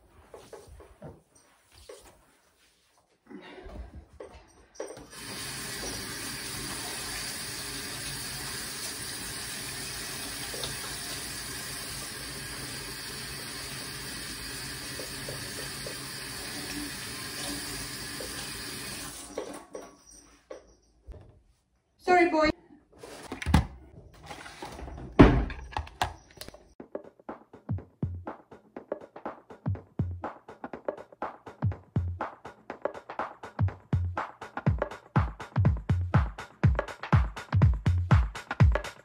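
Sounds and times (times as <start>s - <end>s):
tap running into sink: 5.1s - 9.2s, 10.0s - 12.4s.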